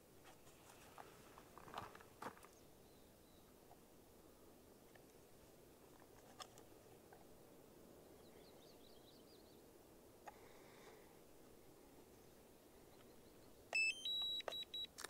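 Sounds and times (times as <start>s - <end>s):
faint outdoor hiss: 0.0s - 15.0s
faint high chirps: 12.9s - 15.0s.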